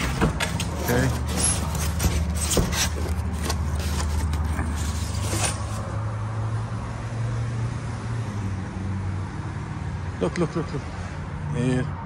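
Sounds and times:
phone handling scrapes and knocks: 0.0s - 5.9s.

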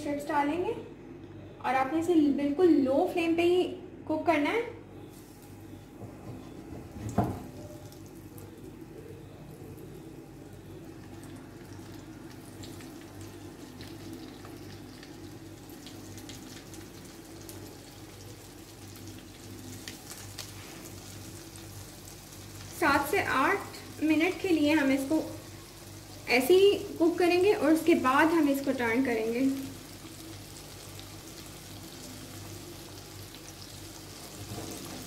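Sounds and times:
chicken frying in oil: 9.6s - 35.0s.

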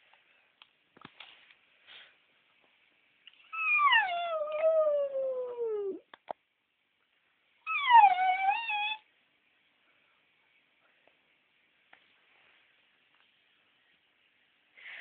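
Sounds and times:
dog howling: 3.6s - 6.0s, 7.7s - 9.0s.

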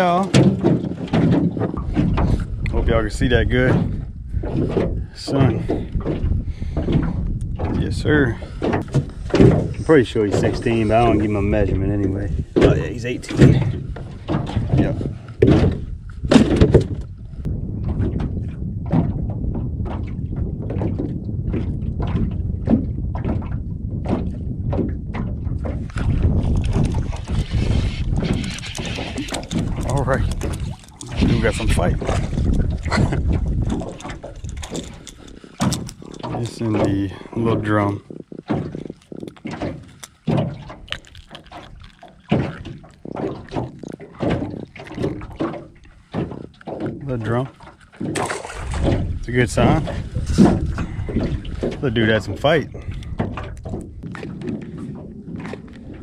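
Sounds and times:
waves slapping metal boat hull: 0.0s - 56.0s
wind rumble on microphone: 0.0s - 56.0s
fish handling noise: 25.6s - 56.0s.

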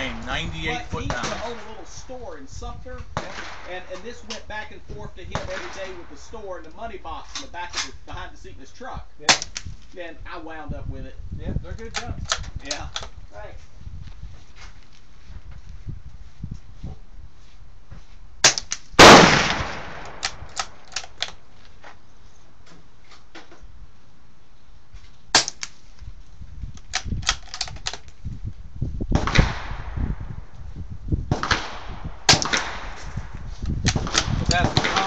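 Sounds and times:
suppressed rifle shots: 0.7s - 1.9s, 3.2s - 4.0s, 5.3s - 6.2s, 18.4s - 21.4s, 29.2s - 29.9s, 31.3s - 33.1s, 33.9s - 35.0s.

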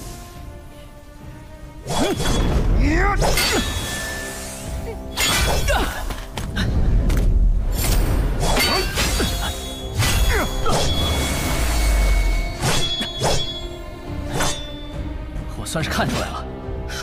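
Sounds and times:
dramatic background music: 0.0s - 17.0s.

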